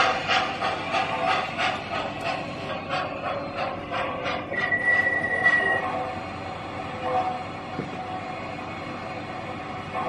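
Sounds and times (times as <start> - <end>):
high steady squeal: 0.0 - 6.3
model train running: 0.0 - 10.0
steam chuff: 0.0 - 10.0.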